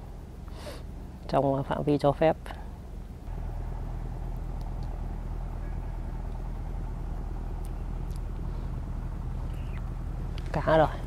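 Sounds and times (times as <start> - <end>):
motor humming: 3.3 - 11.0.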